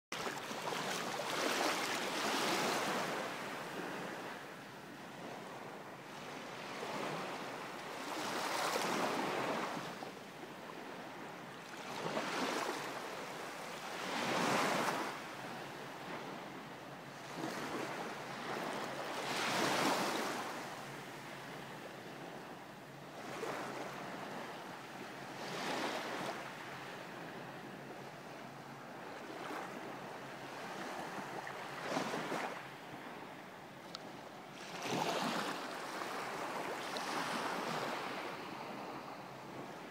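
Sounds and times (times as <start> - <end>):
small waves washing in: 0.2 - 4.3.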